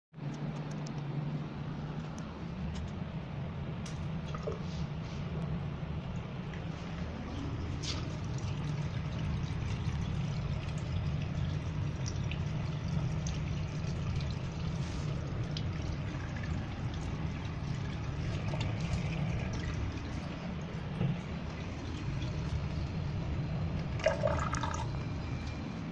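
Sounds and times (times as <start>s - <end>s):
low draining rumble: 0.6s - 25.9s
tap water running into basin: 6.1s - 25.6s.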